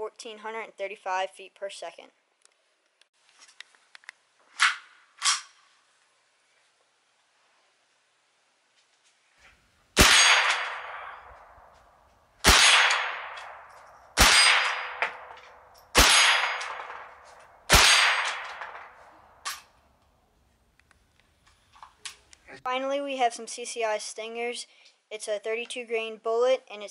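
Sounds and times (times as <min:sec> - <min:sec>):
rifle shots: 0:10.0 - 0:11.7, 0:12.4 - 0:19.7.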